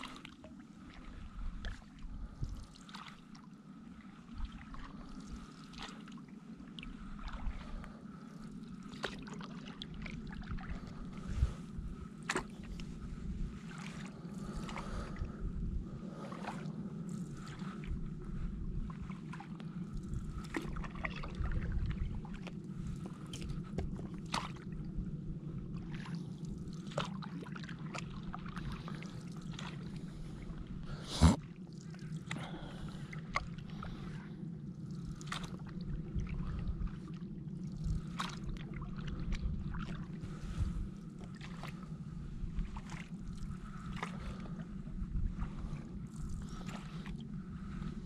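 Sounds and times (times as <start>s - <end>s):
water splashes and drips: 0.0s - 3.5s, 4.1s - 11.6s, 18.9s - 24.9s, 25.7s - 30.4s, 31.4s - 34.2s, 34.8s - 42.0s, 42.6s - 44.6s
paddle strokes in water: 0.0s - 48.0s
steady low hum: 0.0s - 48.0s.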